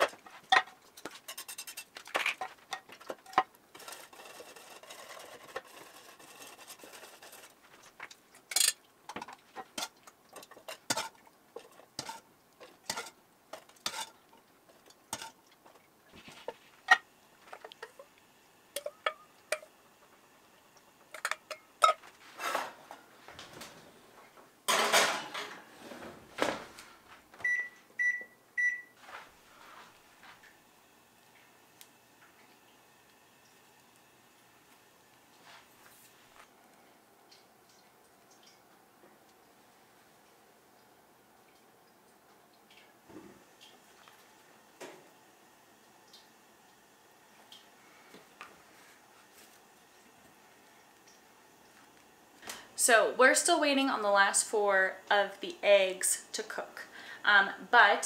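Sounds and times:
metal utensils scraping a pan: 0:00.0 - 0:07.6, 0:08.5 - 0:14.2, 0:14.8 - 0:15.4, 0:21.1 - 0:22.8
microwave keypad beeps: 0:27.4 - 0:29.0.

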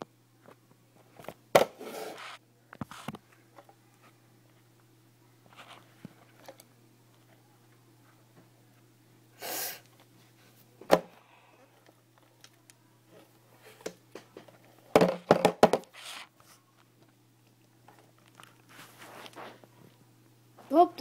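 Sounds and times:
breathy hiss: 0:09.3 - 0:09.9.

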